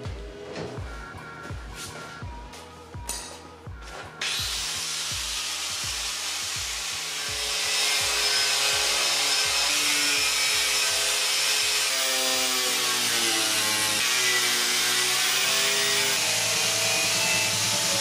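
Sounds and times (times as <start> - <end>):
background music with steady beat: 0.0 - 18.0
angle grinder sanding fiberglass: 4.2 - 18.0.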